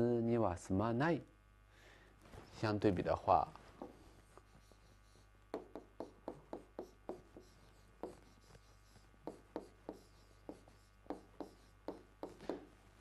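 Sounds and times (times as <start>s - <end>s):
pen scratching on a board: 3.8s - 12.7s.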